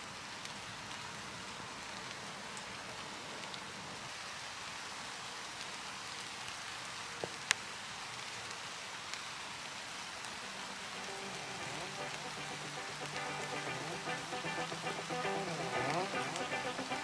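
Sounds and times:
woodland ambience hiss: 0.0s - 17.0s
faint music: 10.4s - 17.0s.

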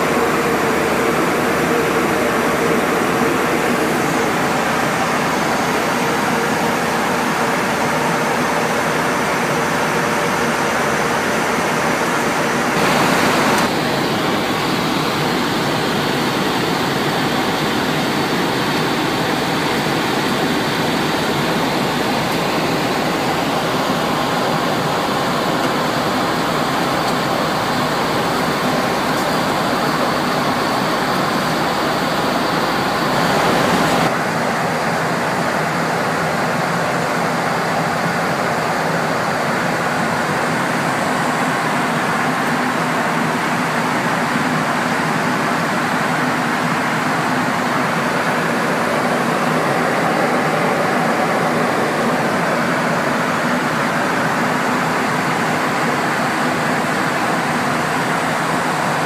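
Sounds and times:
cockpit airflow and air conditioning hiss: 0.0s - 59.0s.

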